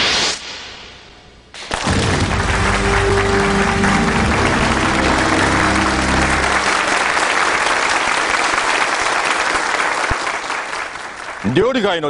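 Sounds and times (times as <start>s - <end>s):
studio audience applauding: 1.7s - 12.0s
low music notes: 2.2s - 7.4s.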